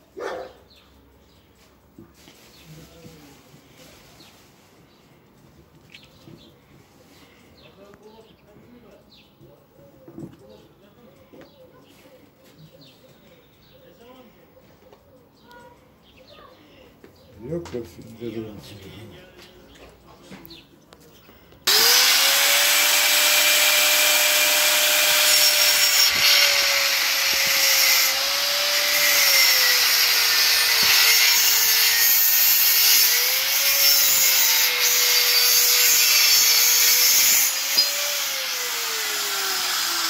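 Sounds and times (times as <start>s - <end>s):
angle grinder cutting metal: 21.7s - 40.0s.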